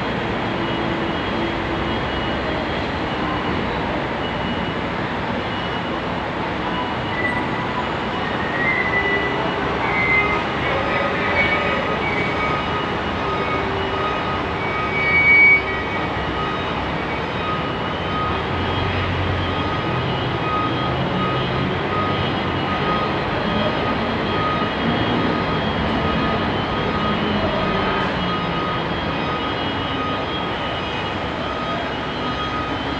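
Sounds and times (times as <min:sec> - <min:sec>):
truck engine: 0:07.4 - 0:32.9.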